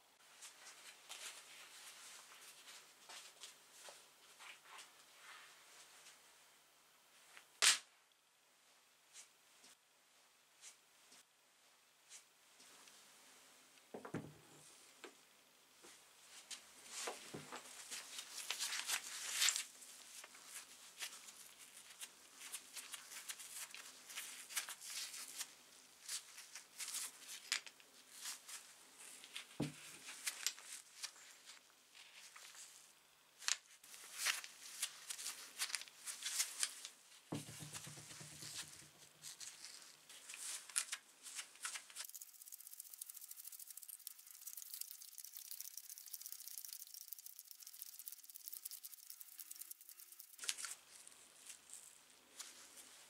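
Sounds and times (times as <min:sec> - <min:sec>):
knock: 0:37.3 - 0:38.8
hand drill clicking and rattling: 0:42.0 - 0:50.6.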